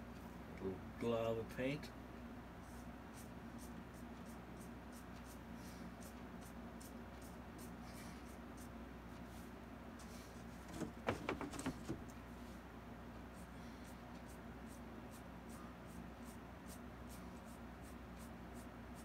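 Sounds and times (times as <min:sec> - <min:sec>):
clattering knocks: 0:10.7 - 0:12.0.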